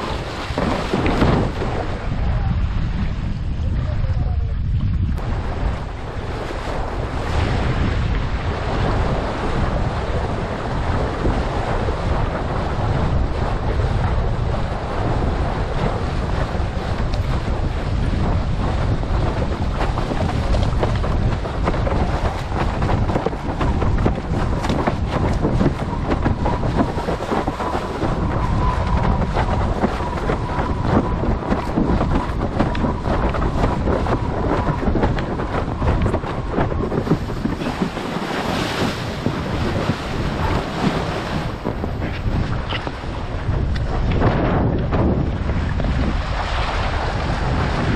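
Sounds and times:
water rushing and splashing: 0:00.0 - 0:04.4, 0:05.1 - 0:47.9
wind buffeting microphone: 0:00.0 - 0:47.9.

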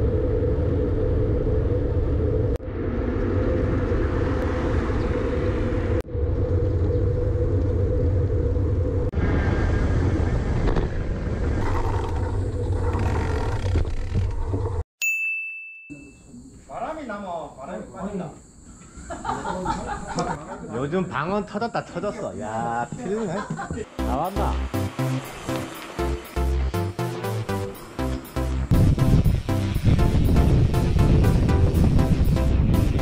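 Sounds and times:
wind rumble and road noise: 0:00.0 - 0:14.8
short bright ding: 0:15.0 - 0:16.3.

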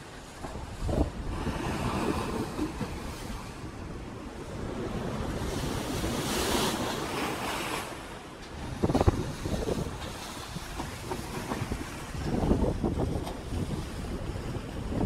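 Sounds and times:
wind buffeting microphone: 0:00.4 - 0:15.0.

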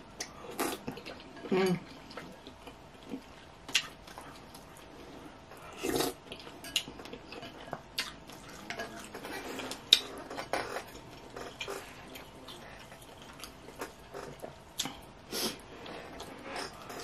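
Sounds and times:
slurping and chewing noodles: 0:02.2 - 0:07.4.

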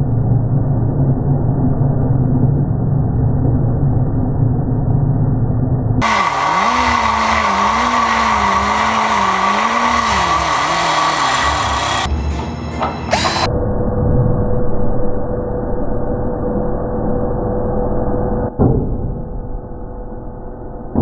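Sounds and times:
cut-off wheel grinding steel: 0:06.0 - 0:12.1, 0:13.1 - 0:13.5.

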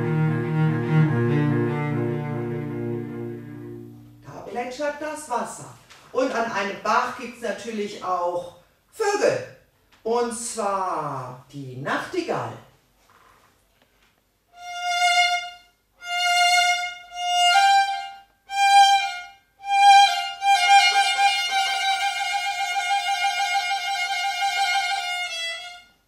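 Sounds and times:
solo violin playing: 0:00.0 - 0:04.3, 0:14.5 - 0:26.0.

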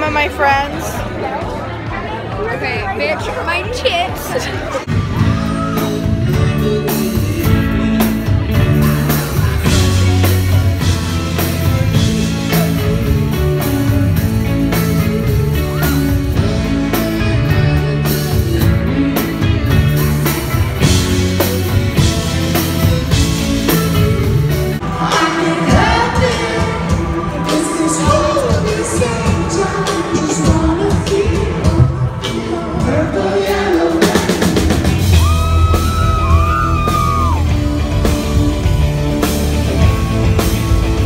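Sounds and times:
bass guitar: 0:00.0 - 0:41.0
drums: 0:00.0 - 0:41.0
electric guitars: 0:04.4 - 0:41.0
person singing: 0:05.0 - 0:11.2, 0:24.8 - 0:38.4.

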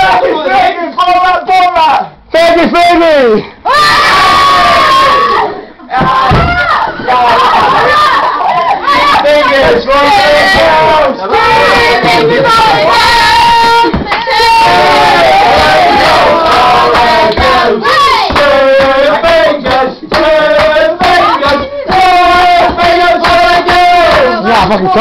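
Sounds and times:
people singing long held notes: 0:08.0 - 0:25.0.

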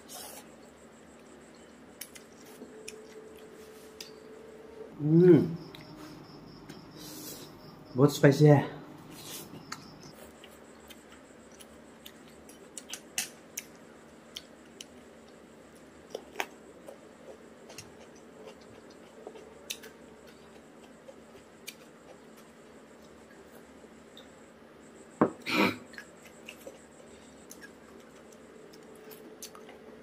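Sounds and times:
person chewing with mouth clicks: 0:09.4 - 0:15.4, 0:16.0 - 0:23.2, 0:25.9 - 0:29.9.

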